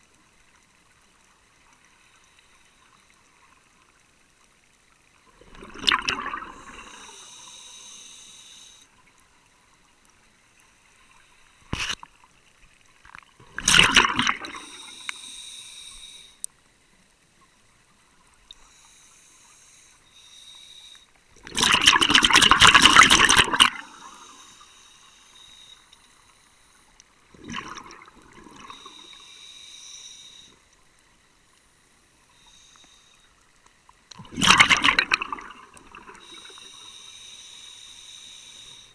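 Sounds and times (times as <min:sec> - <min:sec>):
exhaled bubbles rushing underwater: 0:05.3 - 0:07.2, 0:13.4 - 0:15.0, 0:21.4 - 0:24.4, 0:27.3 - 0:29.1, 0:34.2 - 0:36.5
scuba regulator hiss: 0:06.7 - 0:08.9, 0:13.7 - 0:16.4, 0:18.6 - 0:21.0, 0:23.8 - 0:25.8, 0:28.6 - 0:30.6, 0:32.3 - 0:33.2, 0:36.1 - 0:38.9.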